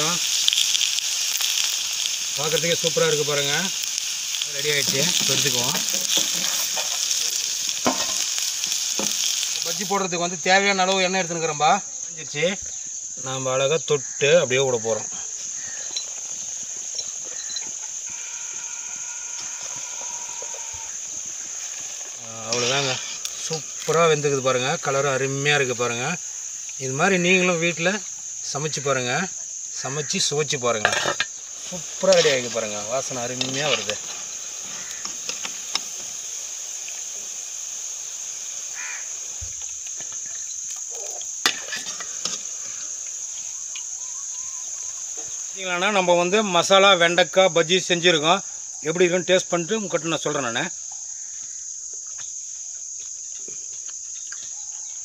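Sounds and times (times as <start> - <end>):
deep-frying sizzle in oil: 0.0 - 11.4, 15.4 - 46.6
crickets chirping: 0.0 - 55.0.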